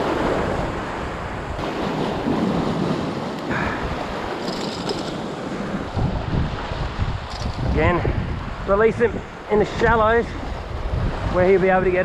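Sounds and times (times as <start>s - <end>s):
ocean waves washing over rocks: 0.0s - 12.0s.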